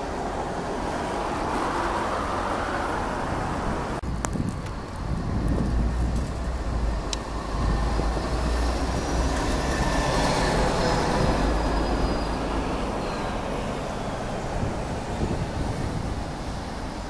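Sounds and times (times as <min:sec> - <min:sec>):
traffic rumble: 0:00.0 - 0:17.0
vehicle passing: 0:05.1 - 0:16.1.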